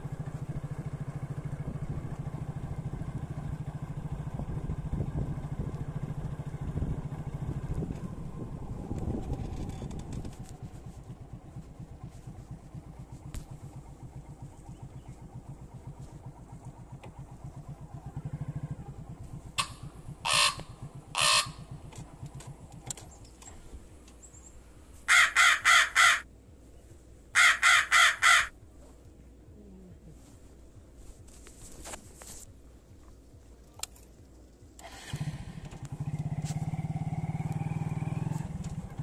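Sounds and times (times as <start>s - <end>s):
motorcycle engine idling: 0.0s - 39.0s
crow cawing: 19.6s - 21.8s, 25.1s - 26.3s, 27.3s - 28.6s.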